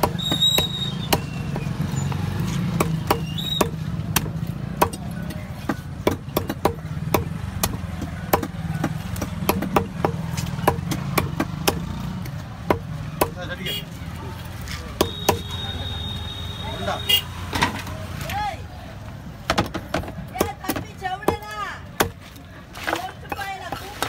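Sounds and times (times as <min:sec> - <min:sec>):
knife chopping fish on wooden block: 0:02.8 - 0:11.8.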